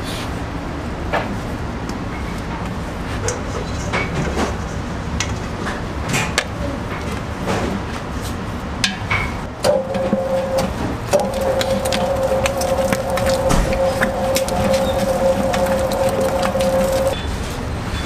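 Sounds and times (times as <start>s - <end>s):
dough mixer rumbling: 9.6s - 17.2s
steady machine whine: 9.6s - 17.2s
dough hook slapping dough: 9.7s - 17.2s.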